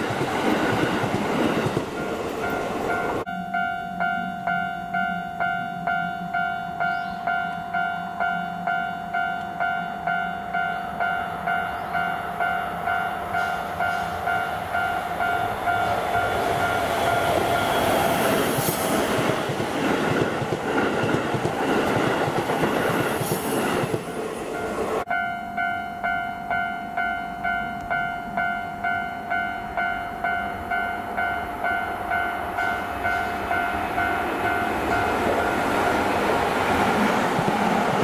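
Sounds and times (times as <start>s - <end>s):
train wheels on rails: 0.0s - 3.3s, 10.9s - 25.1s, 31.0s - 38.0s
electric train passing: 0.0s - 38.0s
level crossing warning bell: 1.8s - 18.4s, 24.2s - 36.2s.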